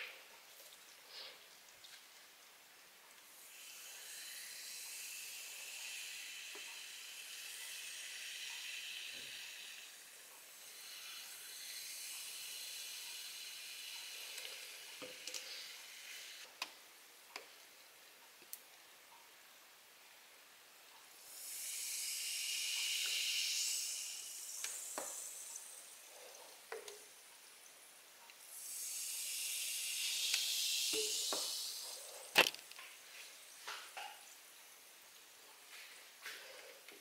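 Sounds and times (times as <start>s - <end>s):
soda fizzing: 3.3s - 16.5s, 21.1s - 27.5s, 28.4s - 34.0s.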